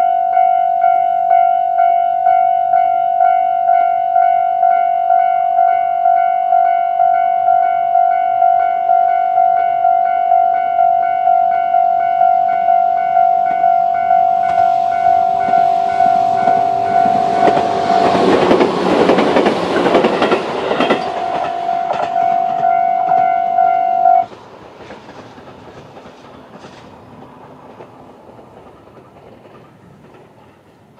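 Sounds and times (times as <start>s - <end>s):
level-crossing alarm dinging: 0.0s - 24.3s
electric train passing: 0.0s - 30.9s.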